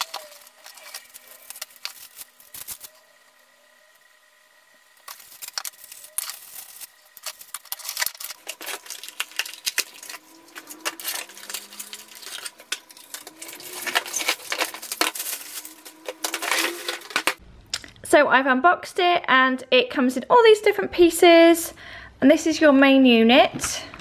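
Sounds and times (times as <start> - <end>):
plastic parts clacking: 0.0 - 2.9, 5.0 - 17.9
packaging crinkling: 0.0 - 3.0, 5.0 - 17.4.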